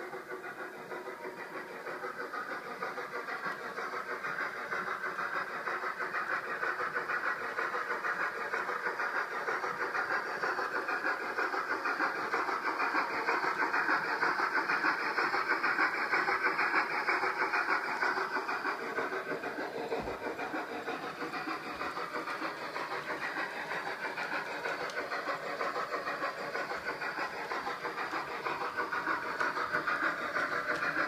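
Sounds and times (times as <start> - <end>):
model steam locomotive chuffs: 0.0 - 31.0.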